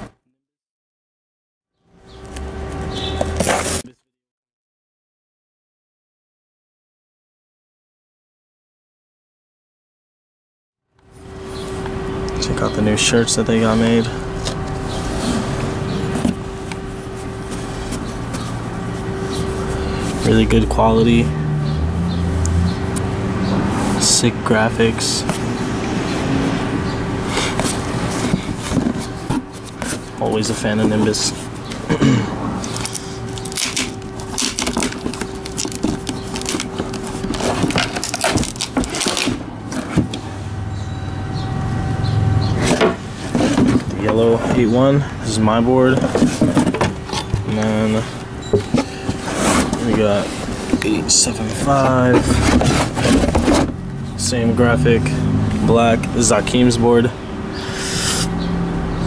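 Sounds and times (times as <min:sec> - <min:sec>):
steady hum: 0:01.9 - 0:03.9, 0:11.0 - 0:59.0
boards scraping against cardboard: 0:03.2 - 0:03.8, 0:27.2 - 0:31.7, 0:32.6 - 0:40.2, 0:42.6 - 0:44.8, 0:45.9 - 0:48.1, 0:48.7 - 0:53.8
plastic wrap crinkling: 0:32.7 - 0:39.4
t-shirt rustling in cardboard box: 0:48.7 - 0:53.7.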